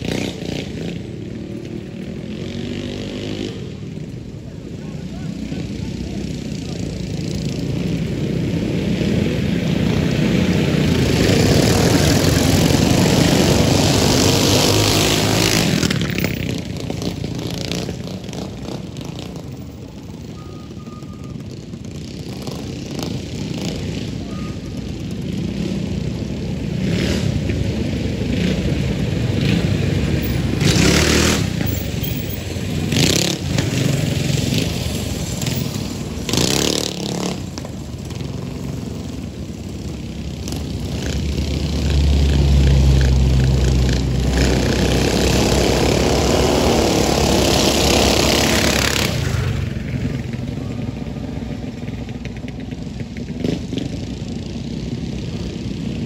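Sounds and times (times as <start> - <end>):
mini bike engines running hard: 0.0 - 56.0.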